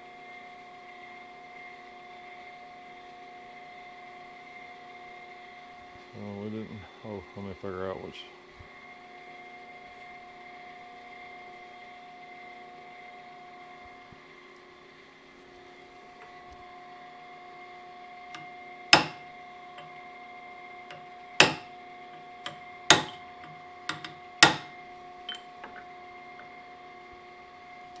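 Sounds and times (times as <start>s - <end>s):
steady machine hum: 15.6s - 28.0s
hammer striking chisel on steel: 18.4s - 19.9s, 20.9s - 25.9s
light metal taps: 22.4s - 24.7s.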